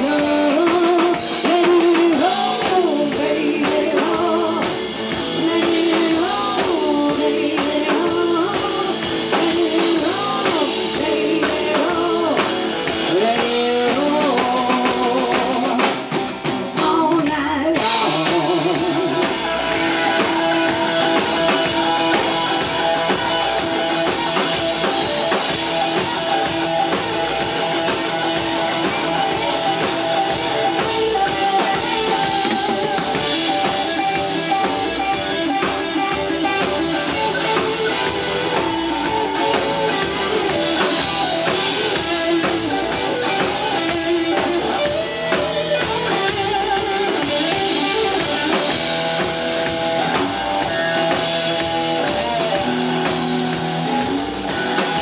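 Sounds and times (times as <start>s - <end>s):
electric guitar: 0.0s - 55.0s
live rock band playing: 0.0s - 55.0s
drum hits: 17.8s - 55.0s.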